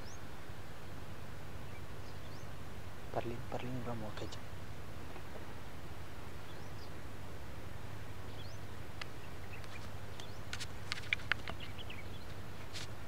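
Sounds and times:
faint bird chirps: 0:00.0 - 0:00.3, 0:01.6 - 0:05.3, 0:06.4 - 0:07.0, 0:08.2 - 0:12.4
steady low hum: 0:00.0 - 0:13.0.

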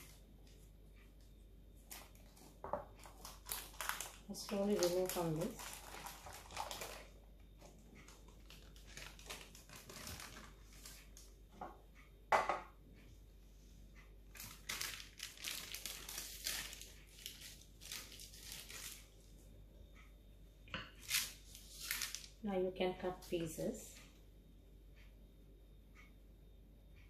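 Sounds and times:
baking paper crinkling: 0:01.8 - 0:11.3, 0:14.3 - 0:19.1, 0:21.0 - 0:22.4.

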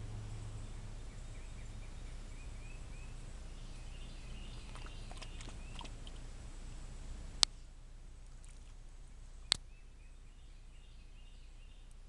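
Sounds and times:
low hum: 0:00.0 - 0:12.0
faint bird chirps: 0:00.6 - 0:06.2
dog pawing at water splashes: 0:04.6 - 0:06.2.

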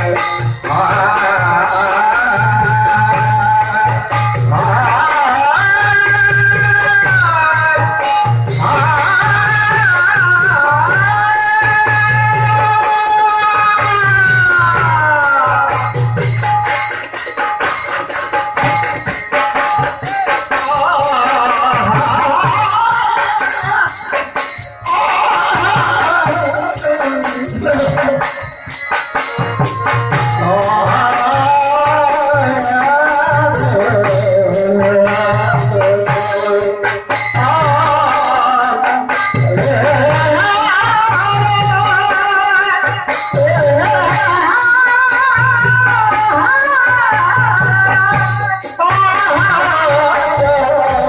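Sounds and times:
drum: 0:00.0 - 0:51.0
jingling percussion: 0:00.0 - 0:51.0
folk singing: 0:24.9 - 0:28.1.

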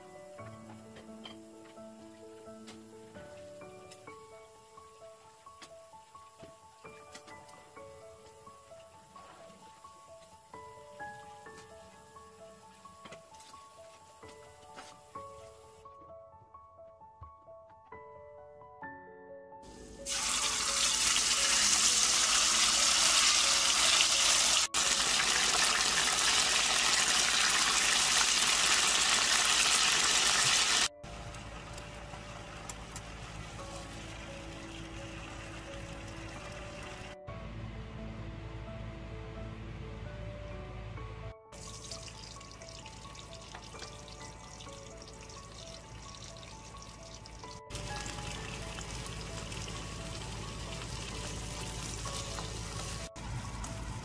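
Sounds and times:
faint music: 0:00.0 - 0:29.2, 0:30.3 - 0:54.0
meat sizzling in oil: 0:20.0 - 0:30.9, 0:41.6 - 0:53.1.

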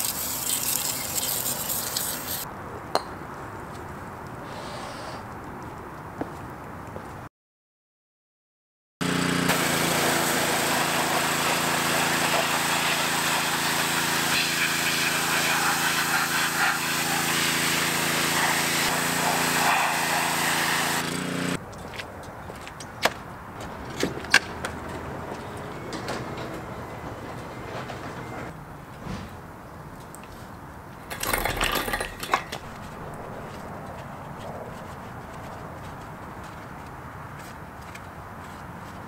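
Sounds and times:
pressure washer spraying: 0:00.0 - 0:02.4, 0:09.0 - 0:21.6.

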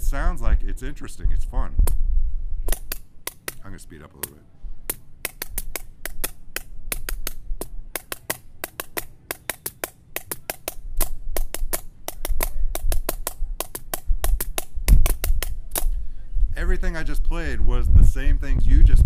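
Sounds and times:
dull low thumps: 0:00.0 - 0:03.7, 0:10.7 - 0:19.0
drumsticks tapping sharp clicks: 0:02.7 - 0:16.0.

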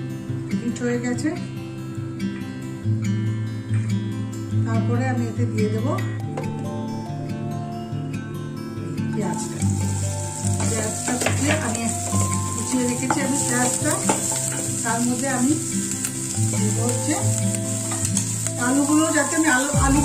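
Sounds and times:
onions sizzling in hot oil: 0:09.2 - 0:20.0
wooden spatula stirring: 0:09.4 - 0:19.7.

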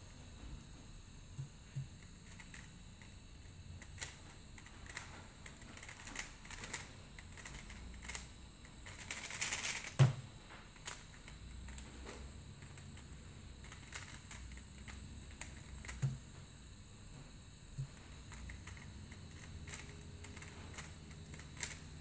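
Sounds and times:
speedcube plastic clicks: 0:03.8 - 0:10.0, 0:12.6 - 0:16.2, 0:18.3 - 0:21.8.

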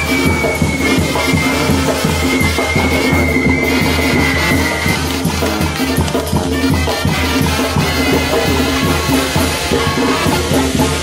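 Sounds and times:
loud music with drums and bass: 0:00.0 - 0:11.0.

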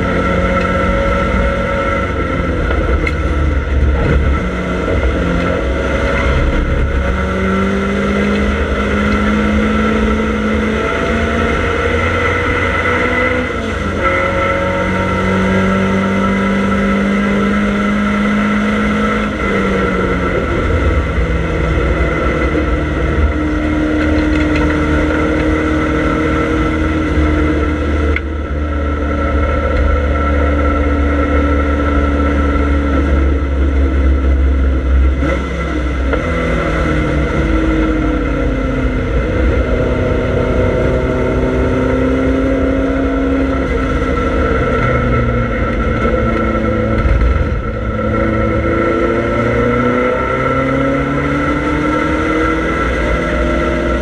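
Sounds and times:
race car engine accelerating: 0:00.0 - 0:54.0
road and wind noise: 0:00.0 - 0:54.0.

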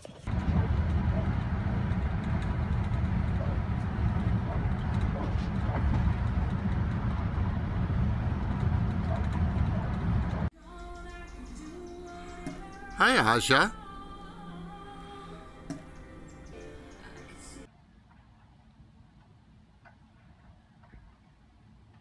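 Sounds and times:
truck road and engine rumble: 0:00.3 - 0:10.5.

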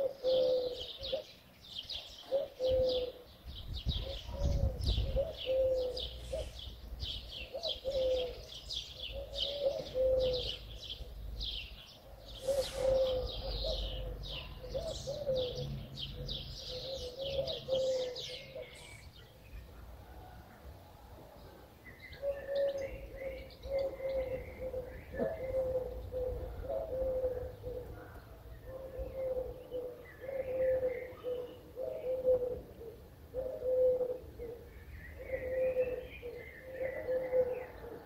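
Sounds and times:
dove cooing: 0:00.0 - 0:11.3, 0:12.3 - 0:19.1, 0:22.1 - 0:38.0
small birds chirping: 0:00.0 - 0:20.0, 0:21.4 - 0:38.0.

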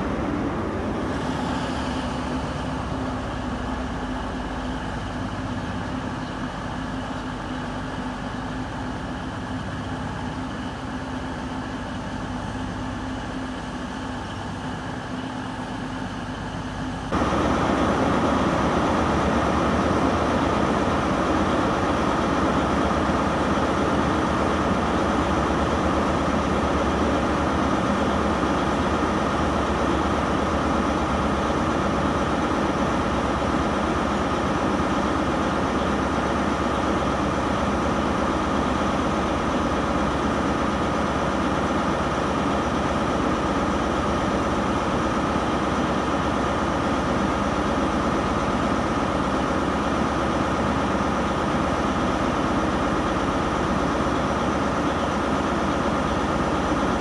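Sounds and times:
train diesel engines idling: 0:00.0 - 0:57.0.

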